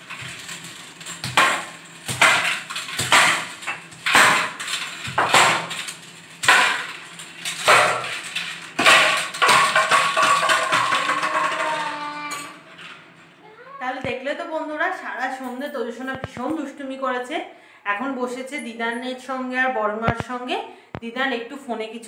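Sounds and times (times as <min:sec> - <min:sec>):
plastic toy bat knocking on tiles: 0:08.8 - 0:12.1.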